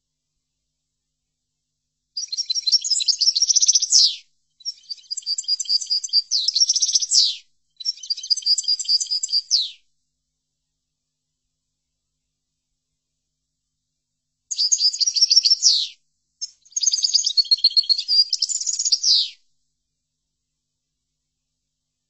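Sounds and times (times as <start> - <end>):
goldfinch twittering song: 2.2 - 9.8, 14.5 - 15.9, 16.6 - 19.3.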